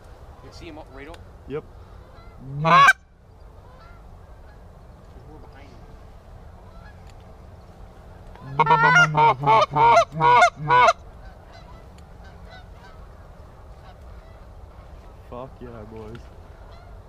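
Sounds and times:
goose honks: 2.0 - 3.0, 3.6 - 4.6, 8.4 - 13.1, 13.8 - 15.0, 16.6 - 17.0.

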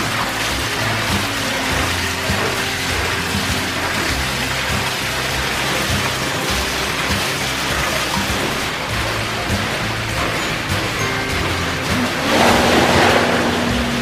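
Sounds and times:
water splashing onto water wheel: 0.0 - 14.0.

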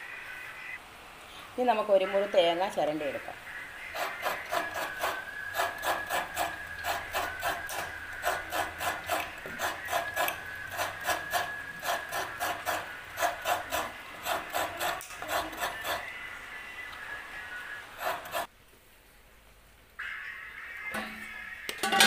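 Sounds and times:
coconut rasping on a grater: 3.9 - 16.1, 18.0 - 18.5.

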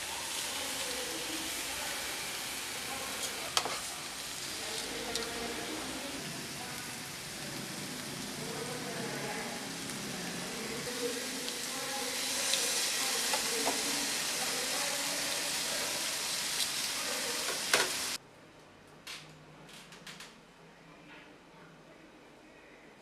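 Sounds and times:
meat sizzling in frying pan: 0.0 - 18.2.

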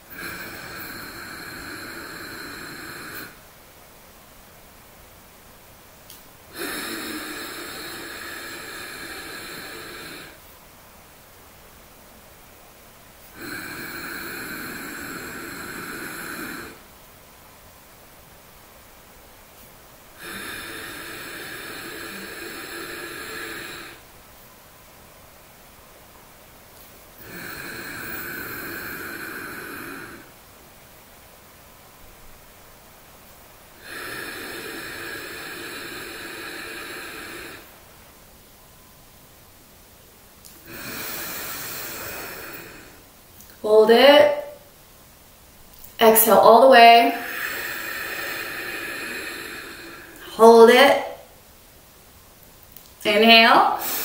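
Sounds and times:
breath drawn through nose: 0.0 - 3.4, 6.5 - 10.5, 13.2 - 16.9, 20.2 - 24.1, 26.8 - 30.4, 33.8 - 37.8, 40.4 - 43.6, 47.1 - 50.3, 53.8 - 54.0.

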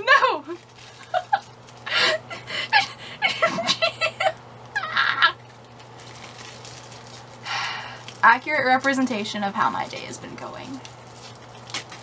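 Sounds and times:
bubble wrap popping and squeaking: 0.4 - 1.9, 4.7 - 7.4, 8.0 - 12.0.

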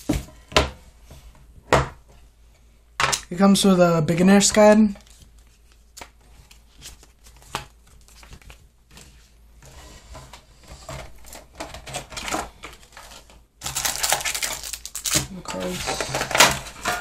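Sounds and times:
packaging rustling: 11.1 - 16.8.

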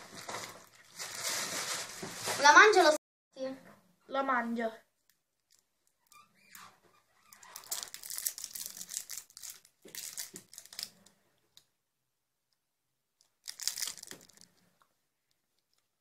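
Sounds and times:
candy wrapper crackling: 7.4 - 11.1, 13.2 - 14.6.

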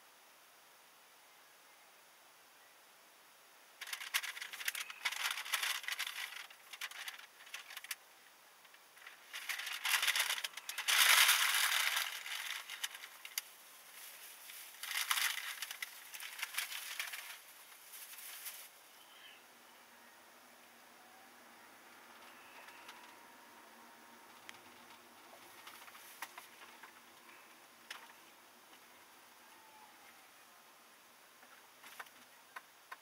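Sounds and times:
dense rattling clicks: 3.8 - 8.0, 8.6 - 13.5, 14.5 - 17.4.

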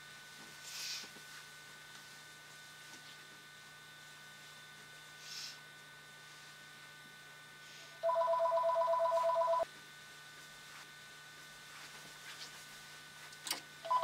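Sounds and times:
electronic telephone ring: 8.0 - 9.7.

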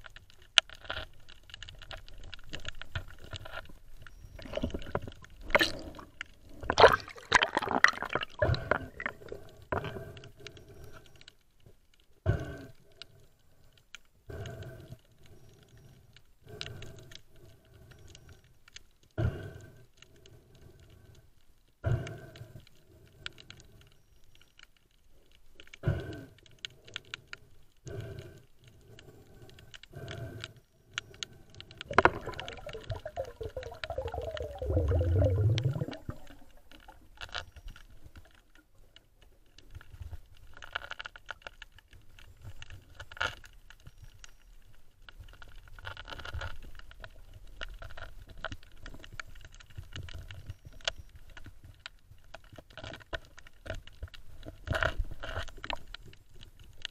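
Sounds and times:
underwater rushing rumble: 31.9 - 36.7
clicks and scrapes: 35.6 - 44.4, 45.1 - 56.9.

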